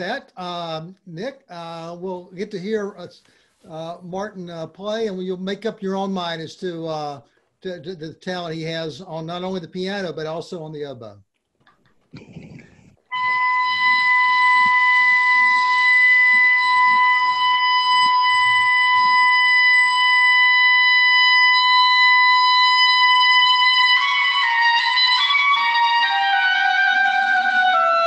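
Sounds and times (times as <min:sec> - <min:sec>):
oboe long high note: 0:13.1 - 0:28.0.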